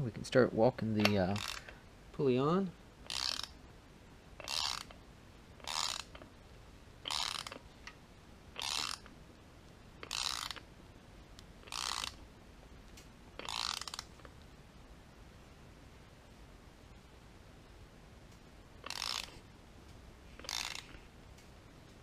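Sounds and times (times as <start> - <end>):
ratchet wrench clicking: 1.0 - 1.8, 3.1 - 3.6, 4.4 - 5.0, 5.6 - 6.2, 7.0 - 7.6, 8.6 - 9.1, 10.0 - 10.6, 11.6 - 12.2, 13.4 - 14.2, 18.8 - 19.4, 20.4 - 21.0.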